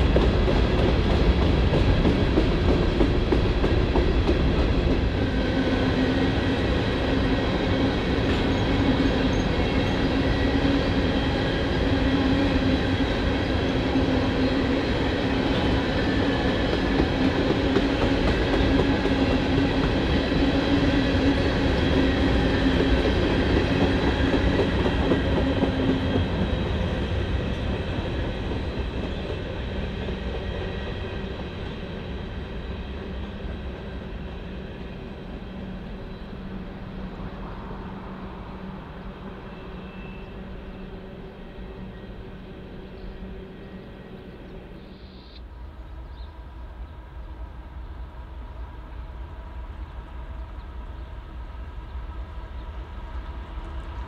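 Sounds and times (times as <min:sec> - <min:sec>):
train wheel clatter: 0:00.0 - 0:05.2, 0:15.4 - 0:32.0
freight train rumbling past: 0:00.0 - 0:54.0.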